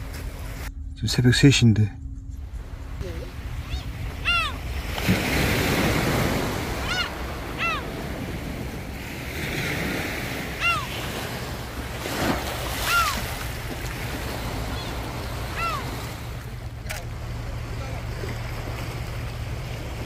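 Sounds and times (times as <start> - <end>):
waves washing onto pebbly shore: 4.4 - 20.0.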